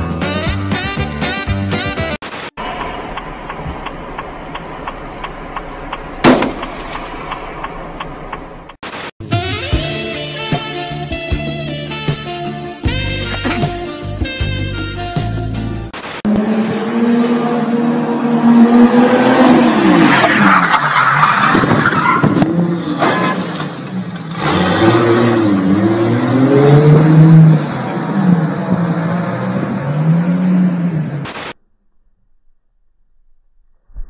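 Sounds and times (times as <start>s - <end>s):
car engine revving: 16.3s - 31.3s.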